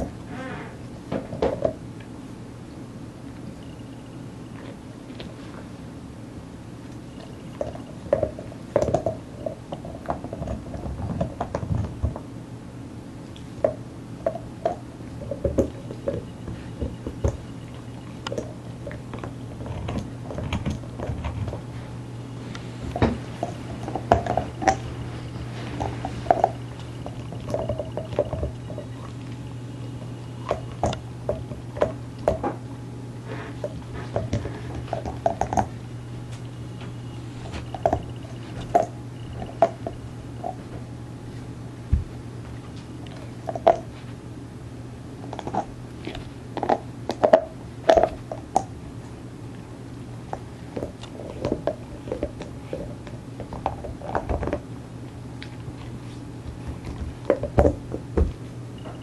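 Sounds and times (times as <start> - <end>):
dog chewing a bone: 6.8 - 12.3, 13.2 - 21.7, 22.5 - 32.7, 33.3 - 35.8, 36.4 - 40.8, 41.9 - 44.1, 45.2 - 48.8, 49.5 - 59.0.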